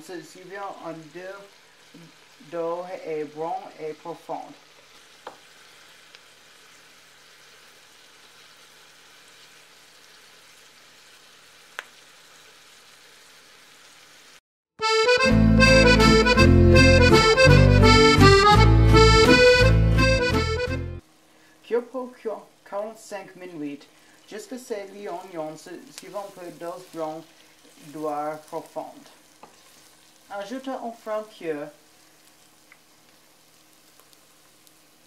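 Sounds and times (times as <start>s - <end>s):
onions sizzling in butter: 0.0s - 14.4s, 21.0s - 35.0s
loud accordion music: 14.8s - 21.0s.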